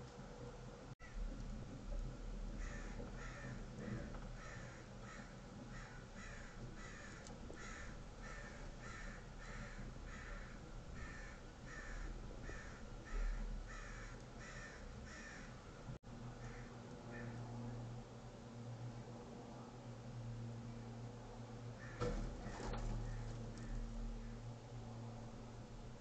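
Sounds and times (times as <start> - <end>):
crow cawing: 2.5 - 15.6, 16.4 - 17.4, 21.8 - 22.2, 23.0 - 24.4.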